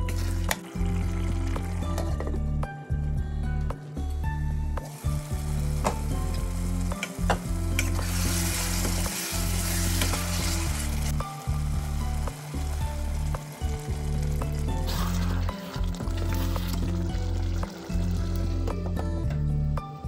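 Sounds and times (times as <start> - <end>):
pot boiling with hissing sizzle: 4.8 - 19.0.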